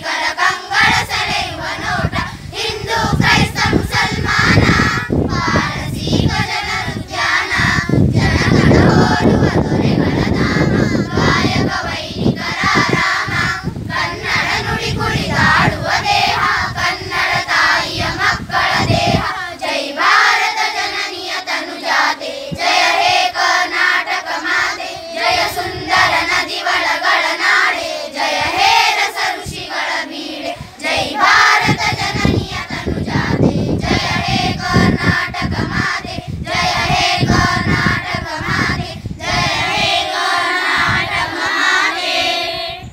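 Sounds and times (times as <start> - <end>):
children singing together: 0.0 - 42.9.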